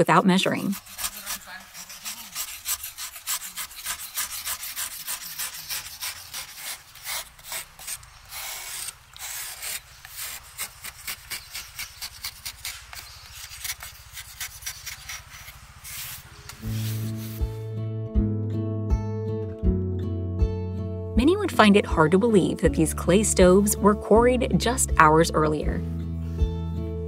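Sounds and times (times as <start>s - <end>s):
metal tool scraping clay: 0.5s - 17.4s.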